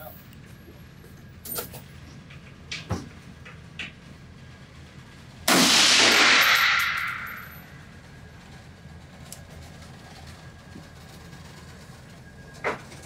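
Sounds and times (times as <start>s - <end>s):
rifle shot ringing indoors: 5.5s - 7.7s.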